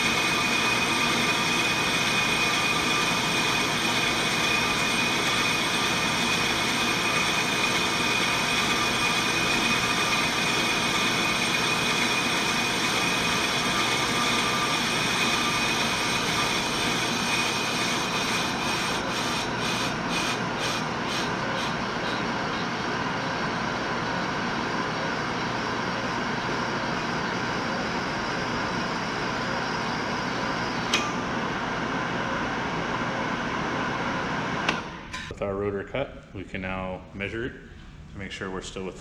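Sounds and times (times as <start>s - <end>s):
brake lathe scraping rotor: 0.0s - 23.7s.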